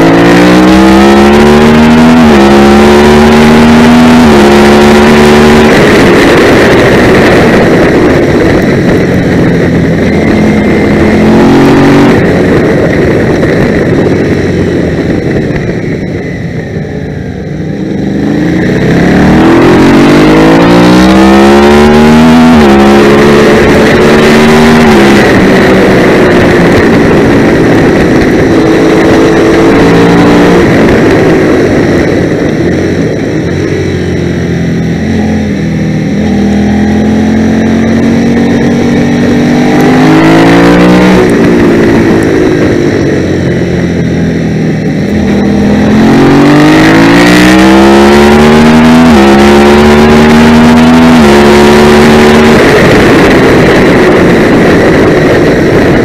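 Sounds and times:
racing motorcycle engine revving: 0.0s - 56.0s.

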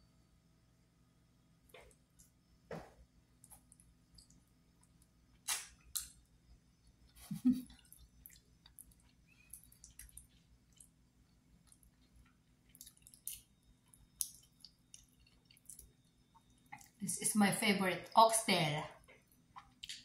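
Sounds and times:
wet eating mouth sounds: 5.4s - 6.2s, 7.1s - 11.0s, 11.6s - 15.9s.

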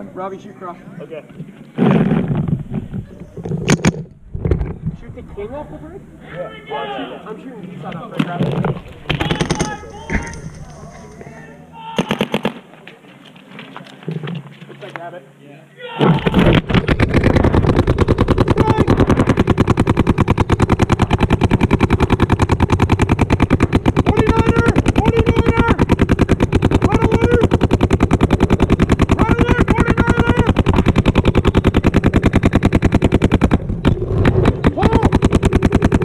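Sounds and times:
paintball marker firing rapidly: 9.0s - 10.8s, 12.0s - 12.6s, 16.0s - 36.0s.

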